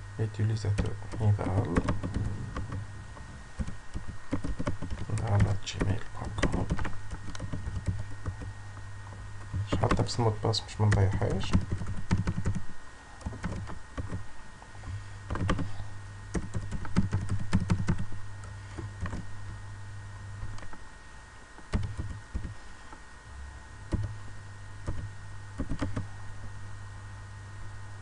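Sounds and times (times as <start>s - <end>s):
steady low hum: 0.0s - 28.0s
typing on a computer keyboard: 0.8s - 2.8s, 3.6s - 8.5s, 10.9s - 12.6s, 13.2s - 14.2s, 15.3s - 15.7s, 16.3s - 18.1s, 19.0s - 19.2s, 21.7s - 22.6s, 23.9s - 24.2s, 24.8s - 26.1s.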